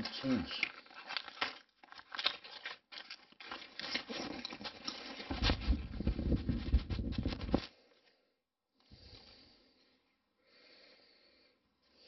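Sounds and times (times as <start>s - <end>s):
microphone rubbing against clothing: 5.5s - 7.7s.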